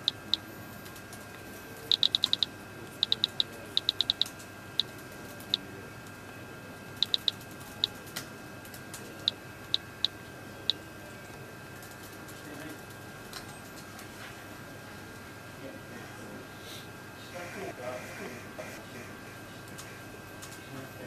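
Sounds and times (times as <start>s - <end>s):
phone picker wheel ticking: 0.0s - 0.4s, 1.9s - 4.3s, 7.0s - 7.9s.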